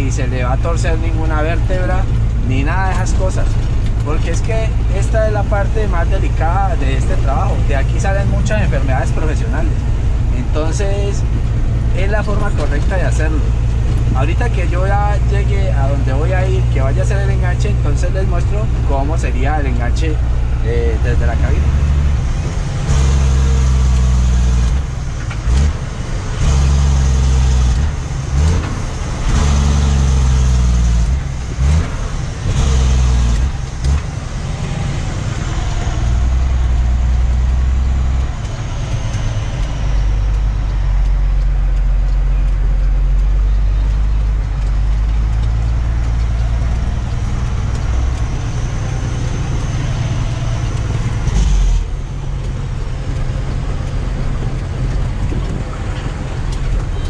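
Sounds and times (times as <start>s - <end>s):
truck diesel engine drone: 0.0s - 57.0s.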